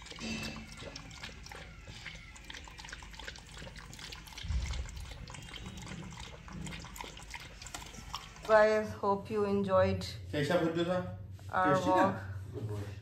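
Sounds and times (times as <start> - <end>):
dog licking and chewing food: 0.0 - 8.7.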